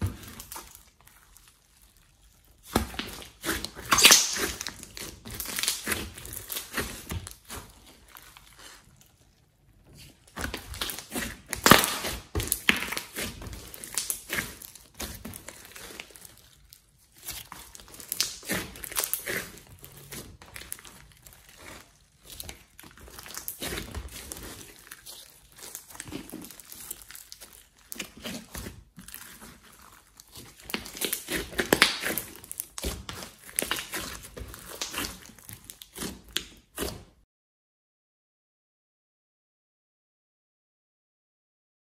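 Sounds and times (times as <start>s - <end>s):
sticky slime clicks and squelches: 3.9s - 6.8s, 10.5s - 14.8s.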